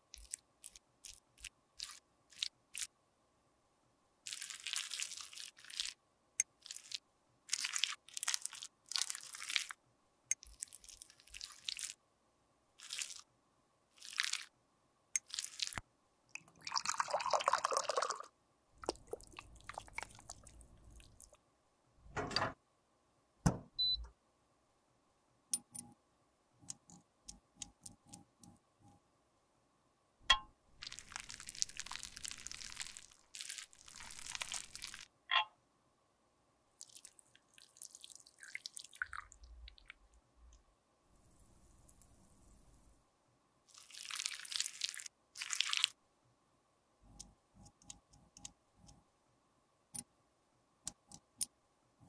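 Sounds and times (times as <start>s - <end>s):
liquid sound: 16.4s - 21.4s, 30.3s - 35.1s, 36.8s - 40.1s.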